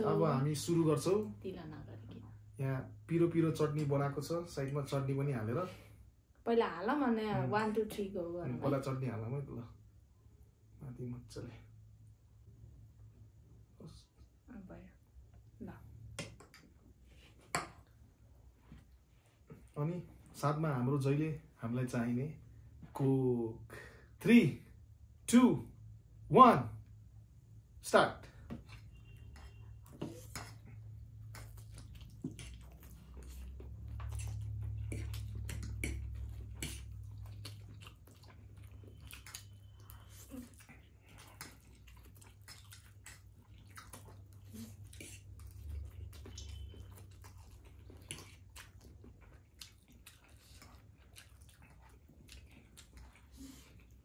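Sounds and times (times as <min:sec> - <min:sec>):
chewing and slurping noodles: 0:28.6 - 0:54.0.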